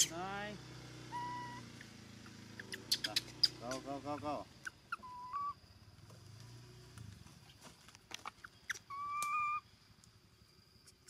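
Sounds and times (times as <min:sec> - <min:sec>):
baby monkey whistle-like coo: 0:01.1 - 0:01.6, 0:04.6 - 0:05.6, 0:08.7 - 0:09.6.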